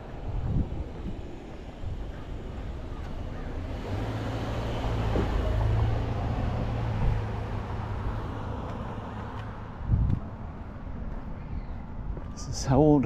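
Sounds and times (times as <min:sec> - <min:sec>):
vehicle passing on street: 0:00.0 - 0:12.2.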